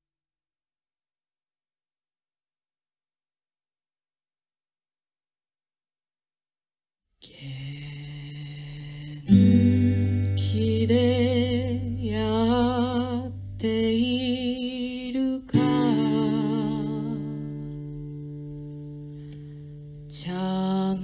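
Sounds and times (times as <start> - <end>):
acoustic guitar chords ringing: 7.9 - 21.0
guitar melody with vibrato: 9.2 - 21.0.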